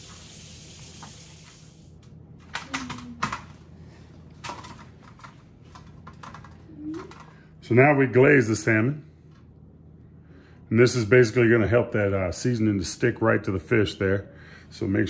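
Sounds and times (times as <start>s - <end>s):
tap water running: 0.0s - 1.8s.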